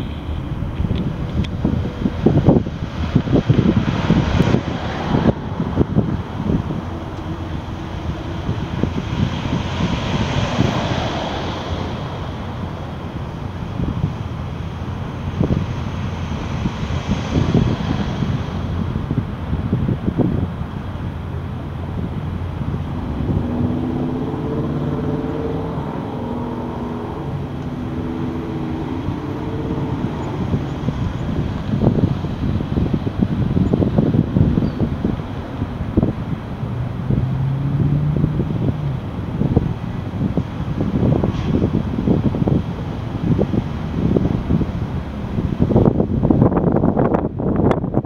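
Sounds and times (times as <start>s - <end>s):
distant jet airliner roar: 0.0s - 48.0s
wind buffeting microphone: 0.0s - 48.0s.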